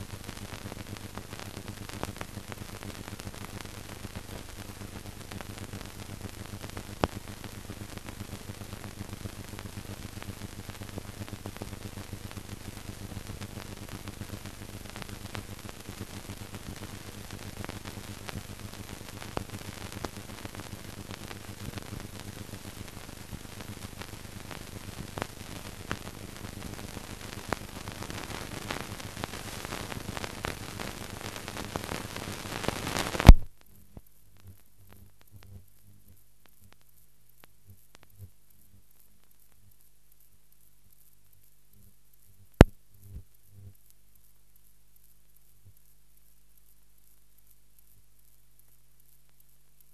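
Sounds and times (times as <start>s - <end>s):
clicks and crackles: 0.0s - 49.9s
film soundtrack hiss: 0.0s - 49.9s
loud pop: 33.2s - 33.5s.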